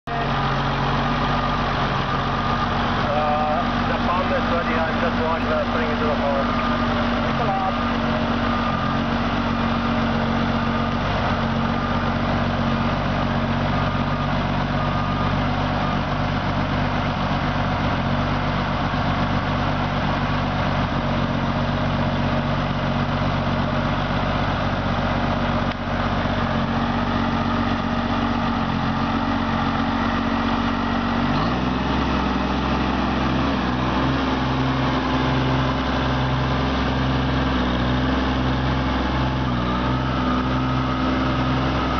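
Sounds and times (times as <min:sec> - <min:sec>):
tractor diesel engine running: 0:00.0 - 0:41.9.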